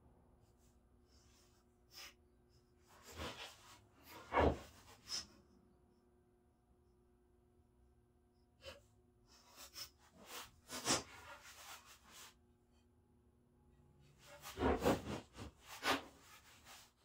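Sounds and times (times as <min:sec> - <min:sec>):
knocks and scrapes on wooden workbench: 0:03.0 - 0:05.3, 0:14.2 - 0:16.8.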